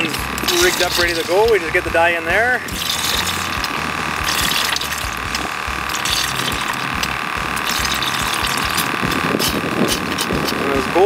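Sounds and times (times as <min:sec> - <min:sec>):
aerator hiss and bubbling: 0:00.4 - 0:01.6, 0:02.6 - 0:10.3
small ticks and splashes: 0:02.7 - 0:10.2.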